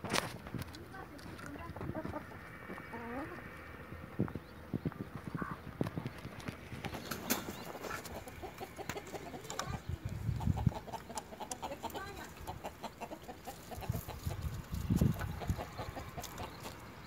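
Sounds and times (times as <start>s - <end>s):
chickens clucking: 0.0s - 17.0s
beaks pecking: 0.6s - 17.0s
low rumbles: 0.7s - 7.6s.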